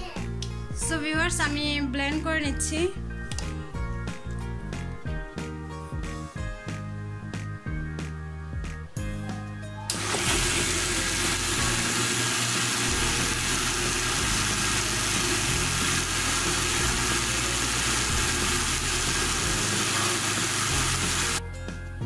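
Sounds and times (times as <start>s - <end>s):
electric blender motor running: 9.9s - 21.4s.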